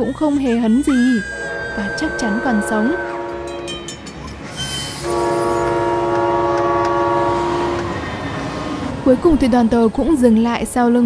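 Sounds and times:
train horn chord: 1.1s - 4.2s, 4.9s - 8.9s.

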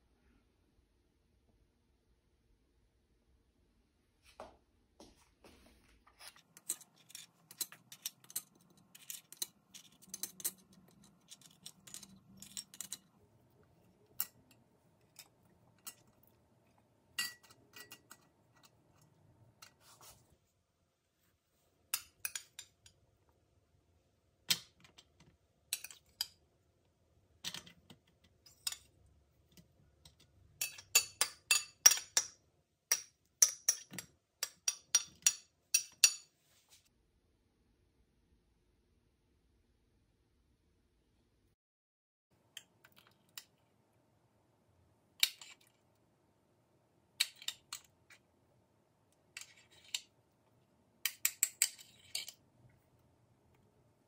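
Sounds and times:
biscuits clicking on glass dish: 51.1s - 52.4s.

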